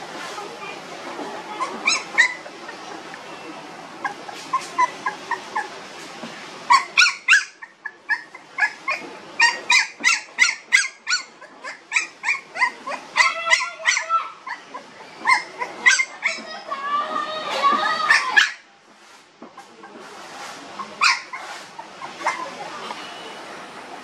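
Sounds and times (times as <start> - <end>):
puppies crying: 1.5 - 3.0, 4.0 - 5.8, 6.7 - 18.6, 20.8 - 22.7.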